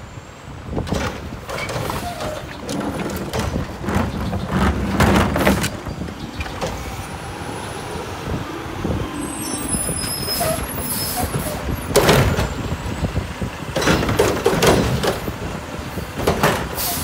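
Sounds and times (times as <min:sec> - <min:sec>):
air brake hisses: 0:16.8 - 0:17.0.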